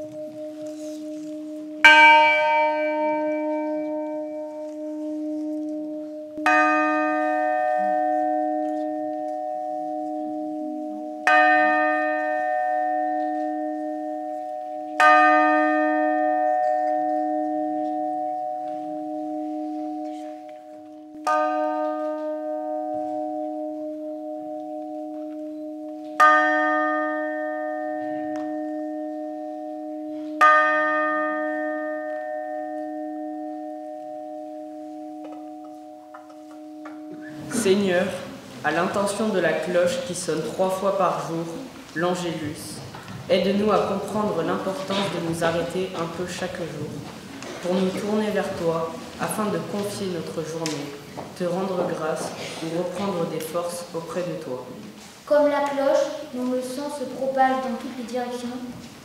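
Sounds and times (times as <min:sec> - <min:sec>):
low wavering bell hum: 0:00.0 - 0:38.4
church bell ringing: 0:00.0 - 0:58.8.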